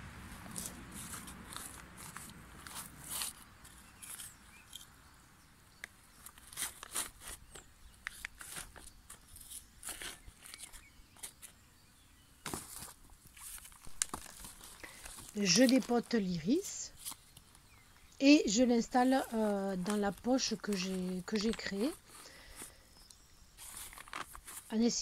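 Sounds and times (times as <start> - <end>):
hand trowel scraping clay soil: 0.3 - 4.8, 6.2 - 11.5.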